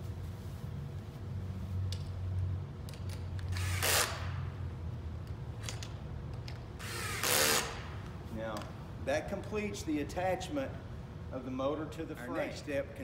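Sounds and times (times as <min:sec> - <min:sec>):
steady low hum: 0:00.0 - 0:13.0
cordless drill running: 0:03.5 - 0:04.3, 0:06.8 - 0:07.9.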